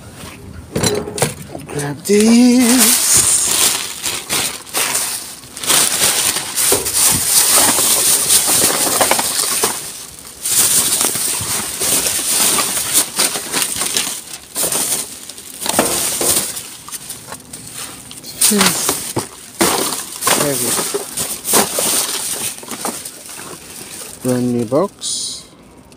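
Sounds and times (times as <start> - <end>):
plastic bags rustling: 1.4 - 25.4.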